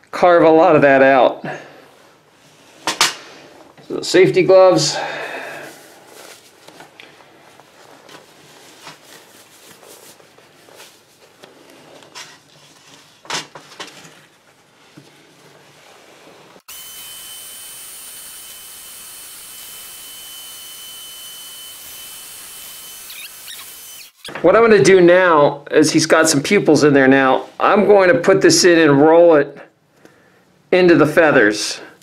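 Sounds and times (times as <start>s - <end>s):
gloves rustling: 1.8s - 16.6s
rotary tool whining: 16.7s - 24.3s.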